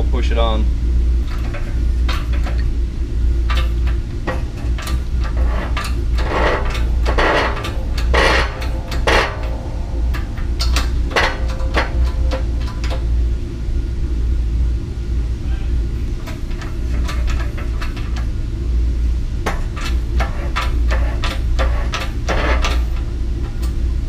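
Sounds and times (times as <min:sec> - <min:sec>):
steady low hum: 0:00.0 - 0:24.0
metal clinks knocks and scrapes: 0:01.2 - 0:02.7, 0:03.4 - 0:13.2, 0:16.1 - 0:18.3, 0:19.4 - 0:23.8.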